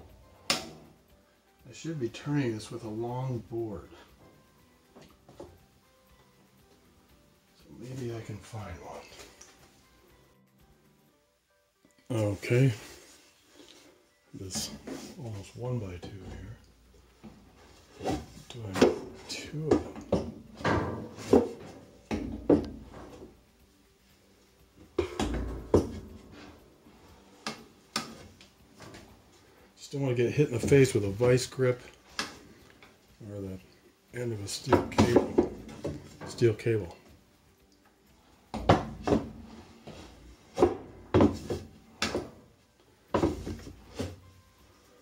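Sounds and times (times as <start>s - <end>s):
wooden board knocking on metal tub: 25.0s - 26.0s
wooden boards knocking: 25.0s - 26.0s, 34.7s - 36.0s, 40.6s - 42.3s, 43.1s - 43.7s.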